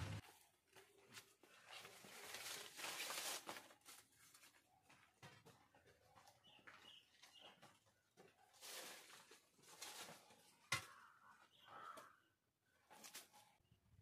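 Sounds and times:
soft bird chirps: 6.4s - 7.7s.

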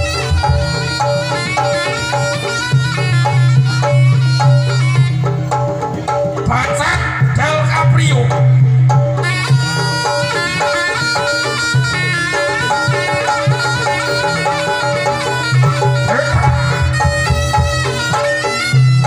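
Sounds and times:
drums: 0.0s - 19.0s.

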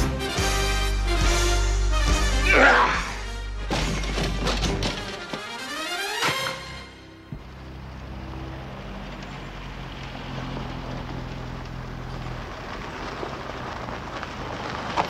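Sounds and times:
car engine running at low speed: 7.1s - 15.0s.

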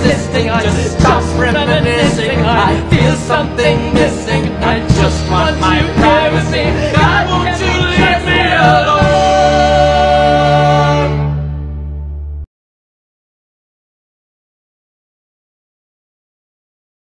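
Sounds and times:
person singing over music: 0.0s - 11.4s.

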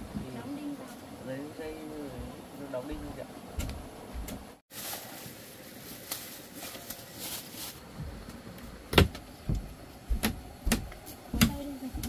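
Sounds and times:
rustling: 4.7s - 8.0s.

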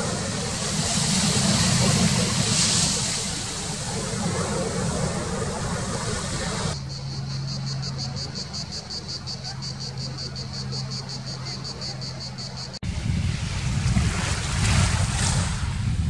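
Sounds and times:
sea waves breaking on beach: 0.0s - 6.8s, 12.9s - 16.0s.

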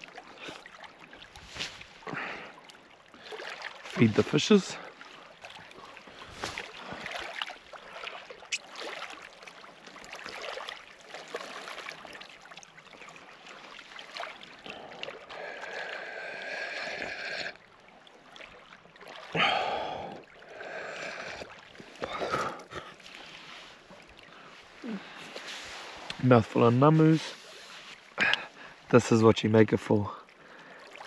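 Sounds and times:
small waves lapping on stones: 0.0s - 31.0s.

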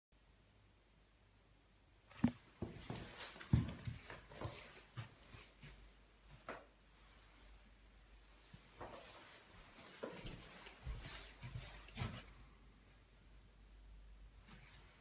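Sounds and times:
footsteps on carpet: 2.2s - 6.6s, 8.6s - 12.4s.

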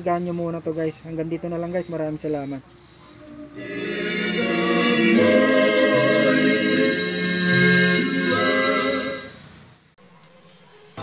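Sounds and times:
choir singing a cappella: 3.2s - 9.5s.

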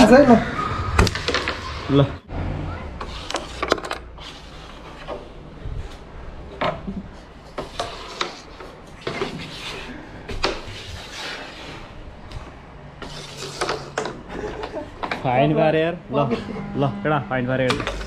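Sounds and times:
carrom pieces clacking: 3.0s - 4.2s, 6.6s - 9.6s, 13.0s - 15.2s
pieces sliding on board: 7.5s - 11.9s.

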